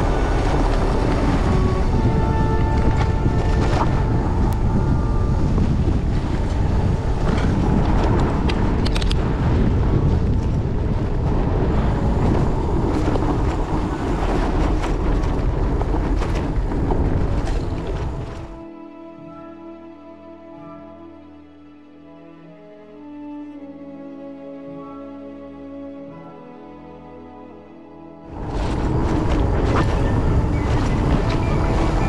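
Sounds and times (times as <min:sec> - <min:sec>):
wind rumble on microphone: 0:00.0 - 0:18.7, 0:28.2 - 0:32.0
bike clicks and rattles: 0:07.2 - 0:09.3.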